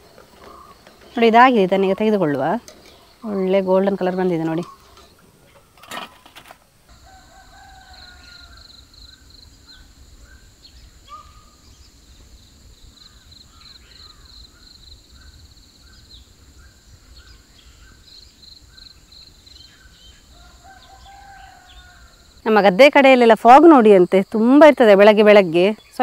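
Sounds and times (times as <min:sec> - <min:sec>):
small birds chirping: 0:00.0 - 0:06.4, 0:07.0 - 0:26.0
distant rooster crowing: 0:06.9 - 0:09.2, 0:20.3 - 0:22.3.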